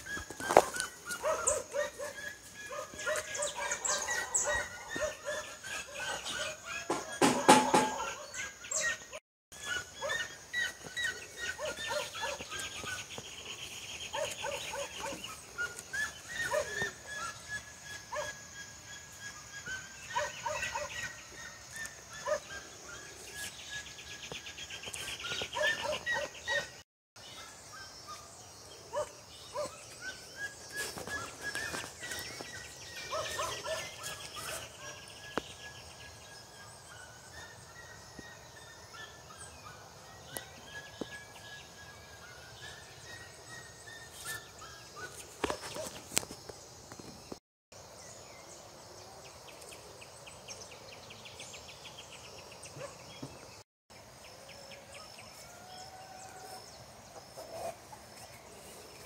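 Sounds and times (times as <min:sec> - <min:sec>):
chickens clucking: 0:00.0 - 0:08.2
birds chirping: 0:00.0 - 0:59.0.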